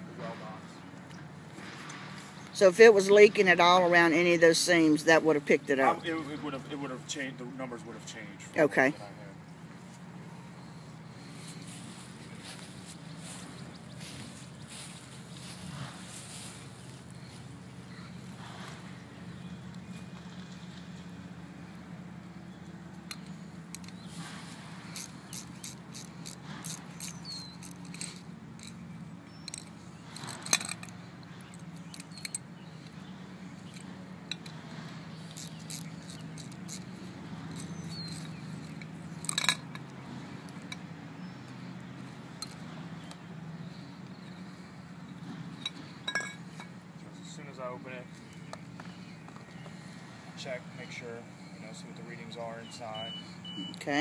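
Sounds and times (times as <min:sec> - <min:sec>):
steady low hum: 0:00.0 - 0:54.0
wrench clicking and scraping on bolts: 0:23.0 - 0:33.0, 0:33.6 - 0:40.9, 0:42.4 - 0:43.2, 0:45.5 - 0:46.8.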